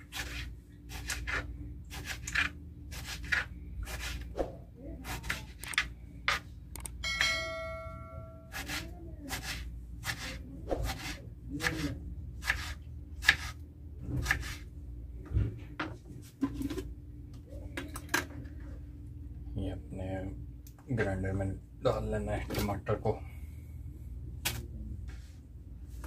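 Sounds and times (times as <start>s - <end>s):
knife slicing tomatoes: 0.0s - 4.3s, 5.0s - 6.4s, 8.5s - 13.6s, 14.2s - 14.6s
bell-like chime: 7.0s - 8.5s.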